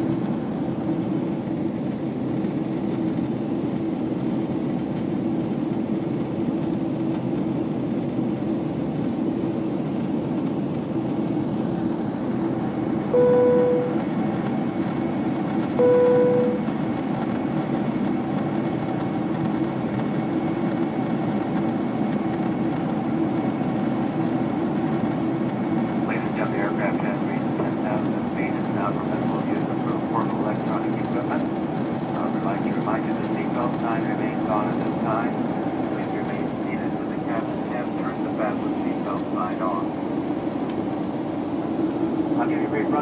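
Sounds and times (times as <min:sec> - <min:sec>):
jet engines roaring: 0:00.0 - 0:43.0
single-tone cabin chime: 0:13.2 - 0:14.0, 0:15.8 - 0:16.7.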